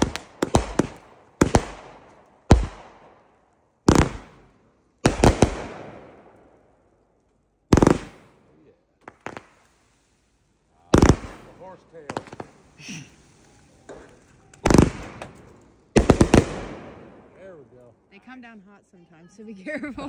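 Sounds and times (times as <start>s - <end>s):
small firework pops: 0.0s - 3.1s, 9.0s - 10.0s, 10.9s - 17.0s
firework bangs: 0.0s - 6.8s, 7.7s - 17.7s.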